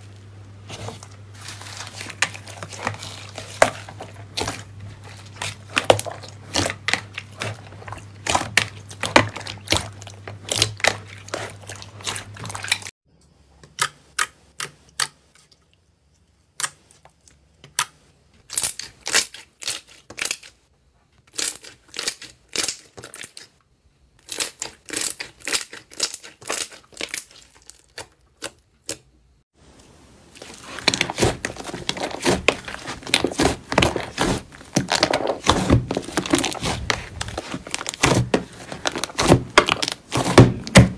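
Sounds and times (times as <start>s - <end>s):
slime popping and crackling: 30.4s - 40.9s.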